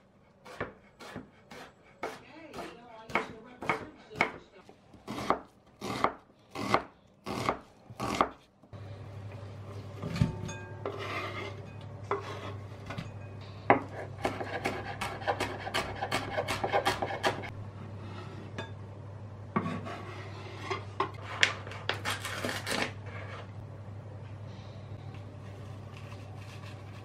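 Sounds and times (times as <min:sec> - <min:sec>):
low steady hum: 0:00.0 - 0:27.0
knife chopping on a board: 0:00.5 - 0:04.4, 0:05.1 - 0:08.4, 0:13.8 - 0:17.5
knife scraping a chopping board: 0:10.8 - 0:12.7, 0:13.8 - 0:17.5, 0:19.6 - 0:23.5, 0:25.9 - 0:27.0.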